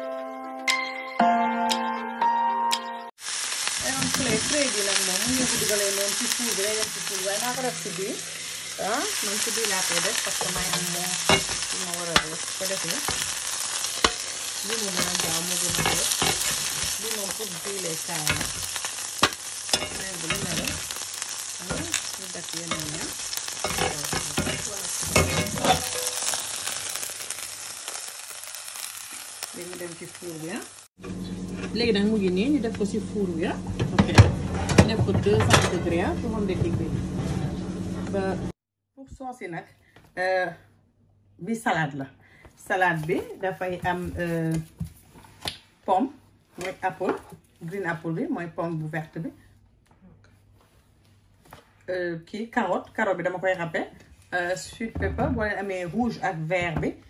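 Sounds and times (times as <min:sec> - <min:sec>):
meat sizzling in hot oil: 0:03.2 - 0:30.9
metal utensils scraping a pan: 0:06.5 - 0:21.0, 0:21.6 - 0:27.0.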